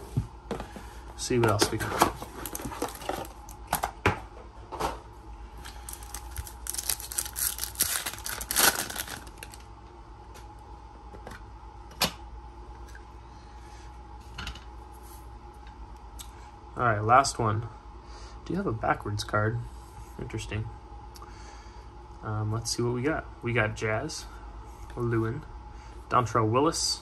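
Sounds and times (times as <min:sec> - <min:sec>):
crinkly rustling: 0:01.6 - 0:03.6, 0:05.7 - 0:09.6.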